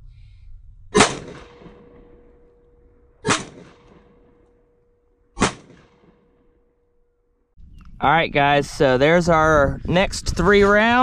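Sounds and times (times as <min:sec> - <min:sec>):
pistol shots: 0:01.0 - 0:02.3, 0:03.2 - 0:04.3, 0:05.4 - 0:06.3.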